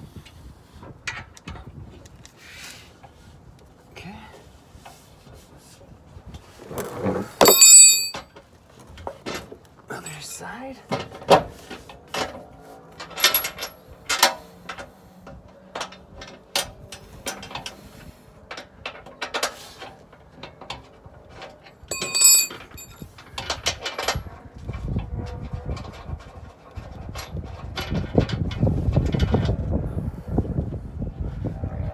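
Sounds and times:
wind rumble on microphone: 0:00.0 - 0:07.4, 0:11.4 - 0:19.1, 0:22.8 - 0:31.9
metallic clinks of bolts: 0:07.4 - 0:08.2, 0:13.0 - 0:13.8, 0:21.9 - 0:23.0.

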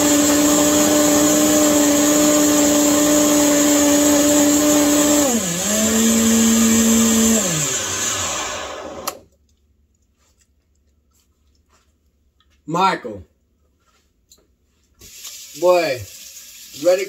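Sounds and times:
blender motor running: 0:00.0 - 0:09.2
blender switch click: 0:08.8 - 0:09.2.

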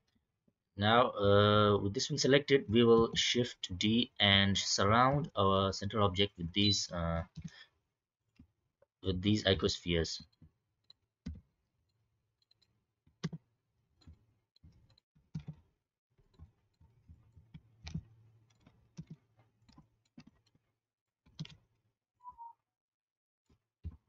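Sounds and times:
computer mouse clicks: 0:21.3 - 0:21.6.

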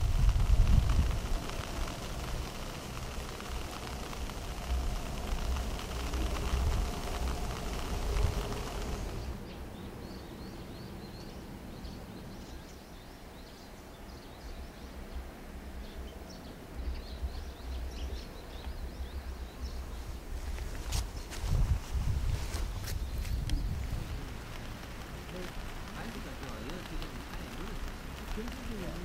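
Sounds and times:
low rumble: 0:00.0 - 0:09.6
steady hiss: 0:00.0 - 0:10.2, 0:12.5 - 0:29.0.

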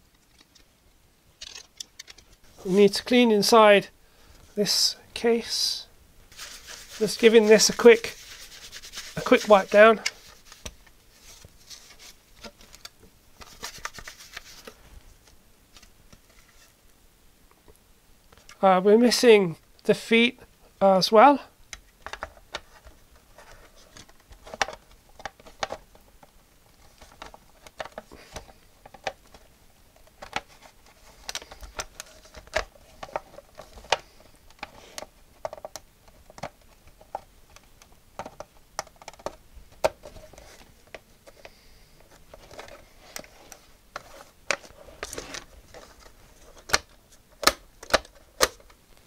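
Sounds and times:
plastic case clicks and scrapes: 0:01.4 - 0:02.4, 0:22.0 - 0:48.8.

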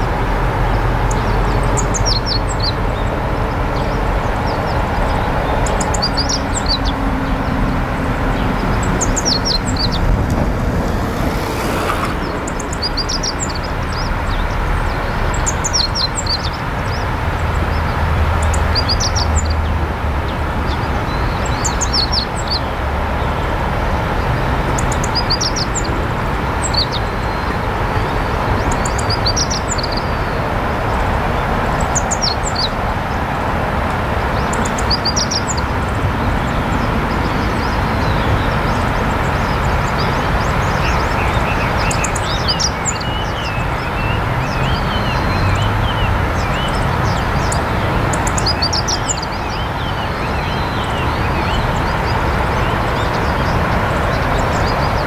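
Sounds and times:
steady rushing noise: 0:00.0 - 0:15.6.

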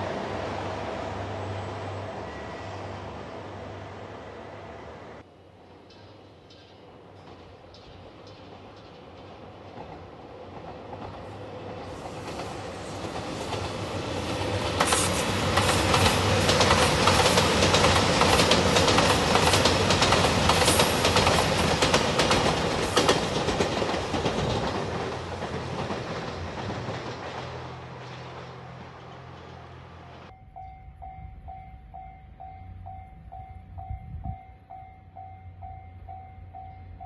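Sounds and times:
diesel train engines: 0:00.0 - 0:37.0
train wheels clicking over rail joints: 0:05.7 - 0:29.6.

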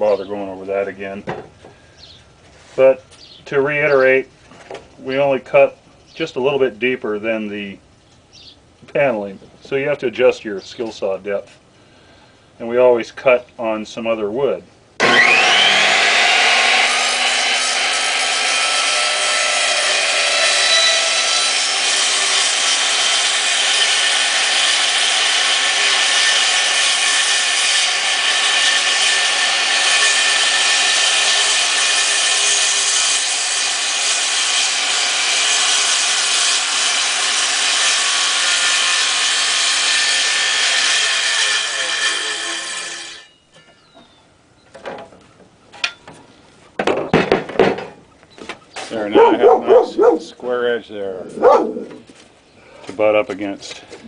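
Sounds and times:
circular saw cutting wood: 0:15.0 - 0:43.4, 0:48.9 - 0:52.0.

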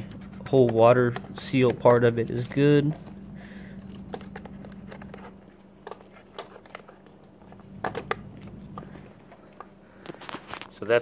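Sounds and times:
steady low hum: 0:00.0 - 0:11.0
small clicks and rubbing: 0:03.8 - 0:10.9.

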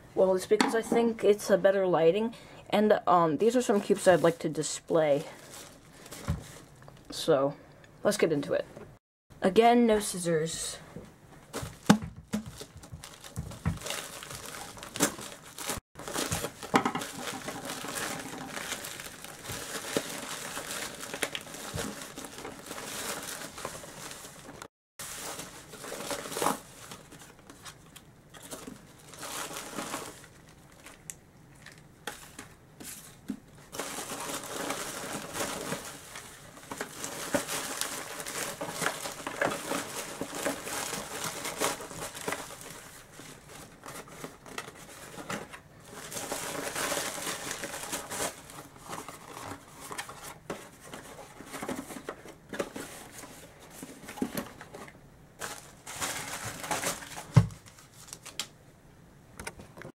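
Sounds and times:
cardboard boxes rustling: 0:11.4 - 0:30.2, 0:32.1 - 0:58.2
plastic bag crinkling and tearing: 0:11.5 - 0:32.4, 0:33.6 - 0:58.6.

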